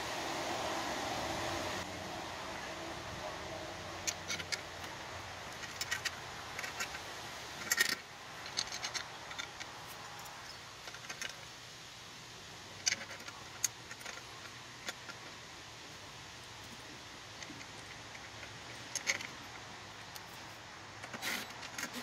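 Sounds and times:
small steel bolts clinking: 0:04.0 - 0:11.5, 0:12.8 - 0:15.4, 0:17.4 - 0:22.0.

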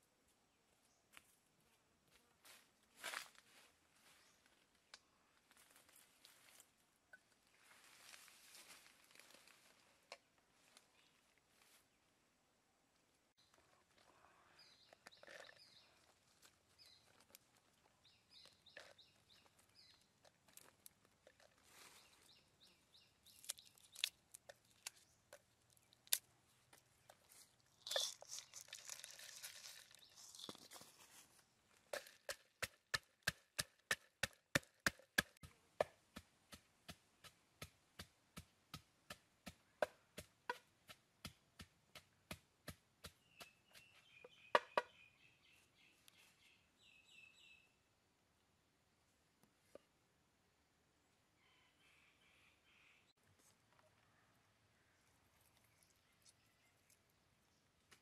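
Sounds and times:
faint bird chirps: 0:13.4 - 0:17.2, 0:43.1 - 0:47.8, 0:51.2 - 0:57.8.

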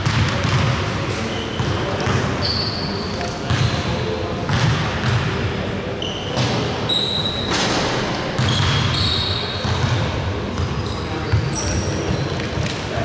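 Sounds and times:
basketball bouncing: 0:00.0 - 0:00.8, 0:03.5 - 0:03.8, 0:04.5 - 0:05.3, 0:08.4 - 0:08.9, 0:09.6 - 0:10.7
sneakers squeaking: 0:00.0 - 0:13.0.

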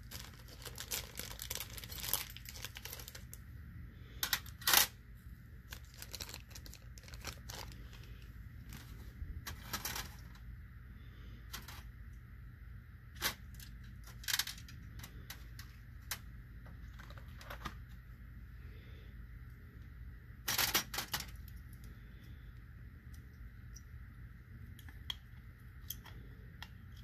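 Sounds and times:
steady low hum: 0:00.0 - 0:27.0
small clicks of handling parts: 0:04.2 - 0:04.9, 0:13.2 - 0:17.8, 0:24.6 - 0:27.0.

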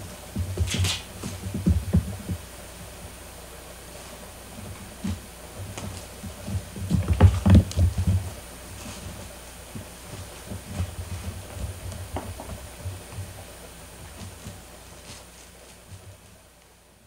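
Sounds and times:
dull thumps and knocks: 0:00.3 - 0:02.4, 0:04.6 - 0:08.4, 0:09.7 - 0:13.4
kittens pawing at plastic bin: 0:00.3 - 0:02.4, 0:03.9 - 0:16.3.

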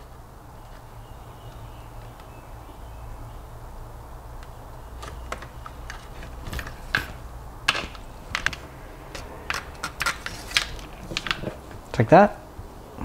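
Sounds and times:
small clicks and taps on wood: 0:04.4 - 0:11.6.

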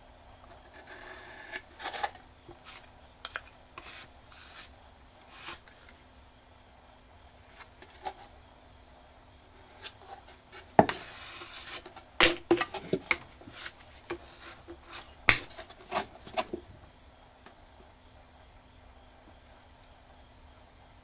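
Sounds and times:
spatula scraping a board: 0:00.6 - 0:02.9, 0:03.8 - 0:04.7, 0:05.3 - 0:05.8, 0:09.6 - 0:16.6.

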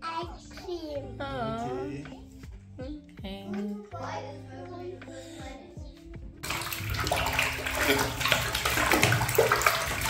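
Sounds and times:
background music: 0:00.0 - 0:10.0
running water: 0:06.4 - 0:10.0.

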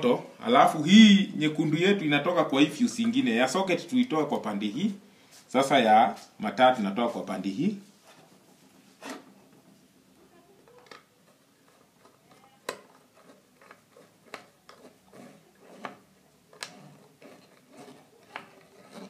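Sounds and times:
light rustling of cables: 0:07.0 - 0:19.0.

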